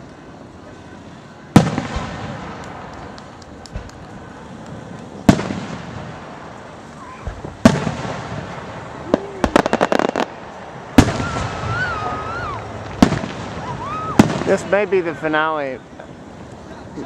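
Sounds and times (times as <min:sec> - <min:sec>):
fireworks crackling: 0:00.0 - 0:17.0
fireworks booming: 0:01.5 - 0:17.0.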